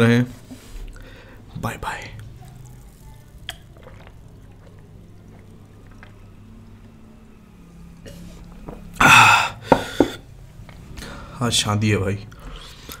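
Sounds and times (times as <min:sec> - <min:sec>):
man sipping and swallowing: 0:03.5 - 0:06.2.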